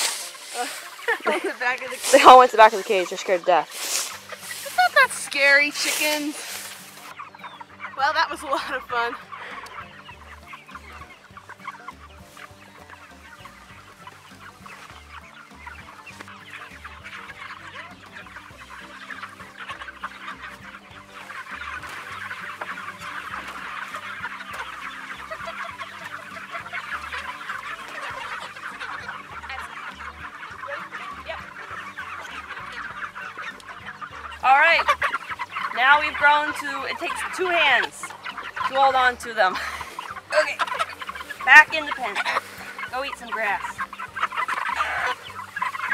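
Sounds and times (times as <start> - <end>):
chickens clucking and peeping: 0.0 - 45.9.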